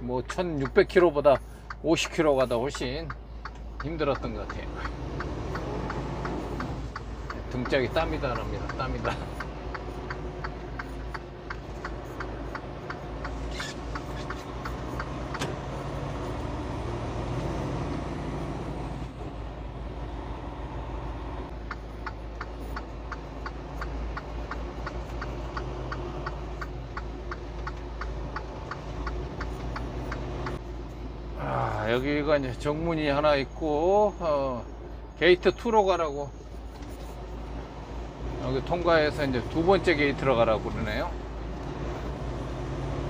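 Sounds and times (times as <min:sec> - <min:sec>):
truck engine running: 0:00.0 - 0:43.0
turn signal clicking: 0:00.2 - 0:18.6, 0:21.5 - 0:30.6
rain and road noise: 0:03.4 - 0:32.3.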